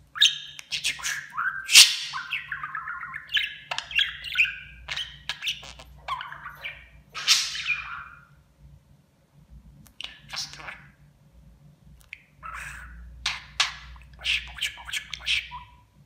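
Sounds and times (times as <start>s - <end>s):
harsh bird chirp: 0.1s - 8.4s, 12.2s - 16.0s
budgerigar chattering and warbling: 0.2s - 8.3s, 12.4s - 15.8s.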